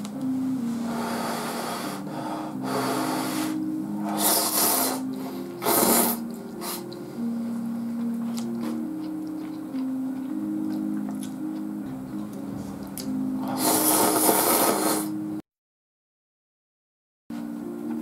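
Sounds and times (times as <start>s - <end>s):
simple background melody: 0.0s - 15.4s, 17.3s - 18.0s
noodles being slurped: 4.0s - 6.9s, 13.4s - 15.2s.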